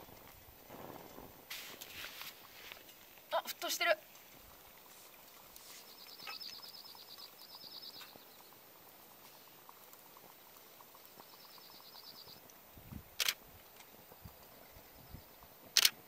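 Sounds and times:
water boiling in pot: 0.0 - 16.0.

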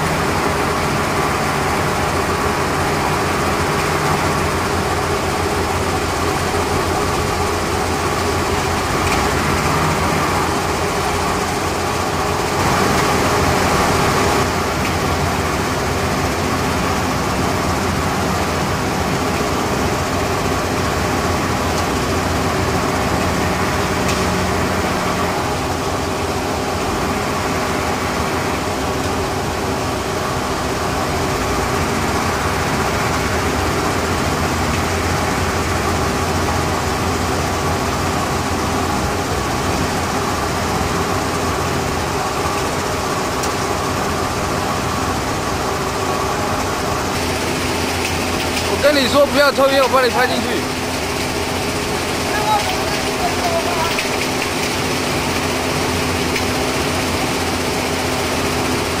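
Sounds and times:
industrial machinery running: 0.0 - 59.0
steady machine hum: 0.0 - 59.0.

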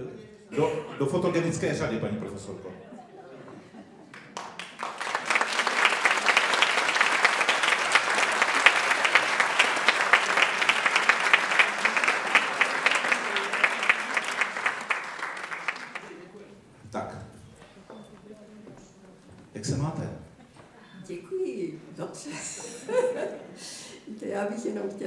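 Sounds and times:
audience applauding: 4.1 - 16.6.

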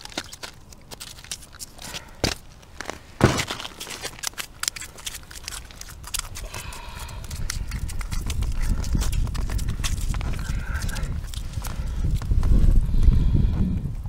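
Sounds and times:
ice and snow crunching: 0.0 - 12.7
louder knocks on ice: 3.2 - 3.7.

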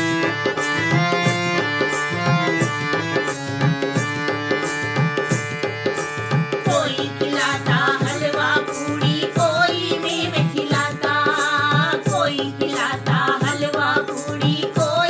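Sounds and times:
harmonium chords: 0.0 - 15.0
women singing devotional song: 6.3 - 15.0.

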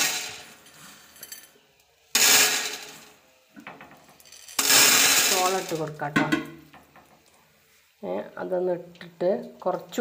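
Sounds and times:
popcorn kernels clattering into pot: 0.0 - 7.0.

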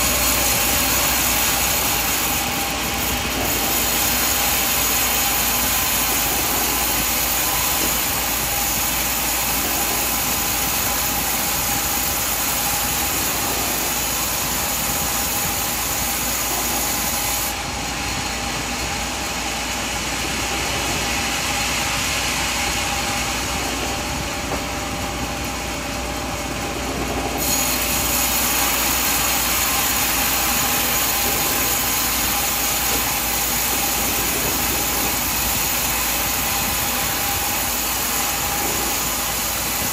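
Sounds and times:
sawmill machinery humming: 0.0 - 39.9.

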